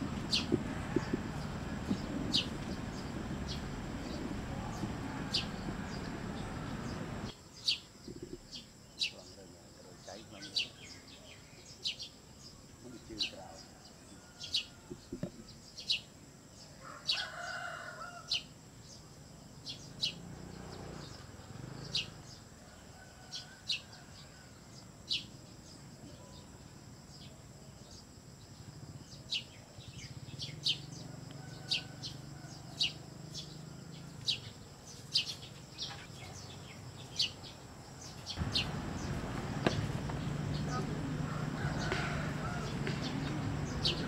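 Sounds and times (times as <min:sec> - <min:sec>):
low bird call: 0:00.0 - 0:07.3
small birds chirping: 0:00.0 - 0:22.6, 0:23.2 - 0:44.0.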